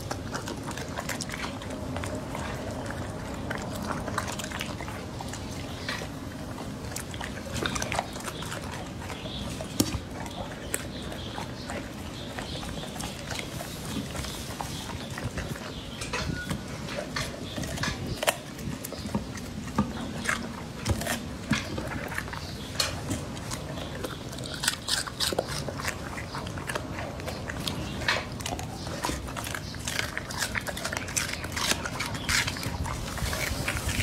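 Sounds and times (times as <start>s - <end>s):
dog crunching pepper: 0.0s - 34.0s.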